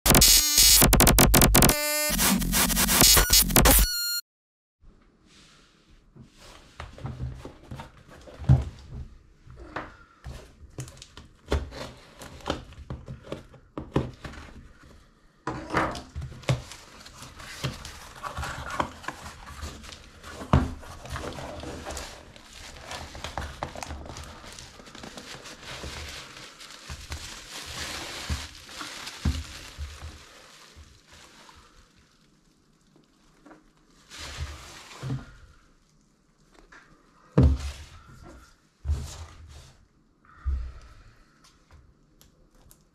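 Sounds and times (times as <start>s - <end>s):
electronic music sting: 0.1s - 4.2s
bubble wrap crinkling: 16.6s - 36.7s.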